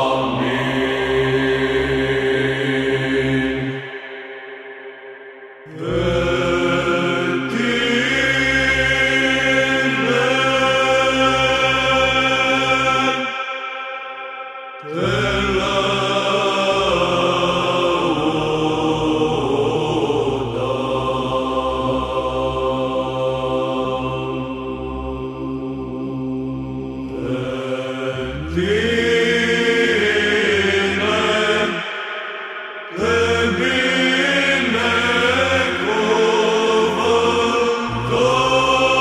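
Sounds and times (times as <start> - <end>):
group chanting melismatic melody: 0.0 - 39.0
held low vocal drone: 0.0 - 39.0.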